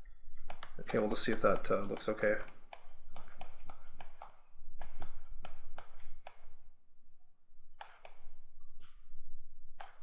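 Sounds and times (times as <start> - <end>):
computer mouse clicking: 0.4 - 6.6, 7.8 - 9.0, 9.8 - 10.0.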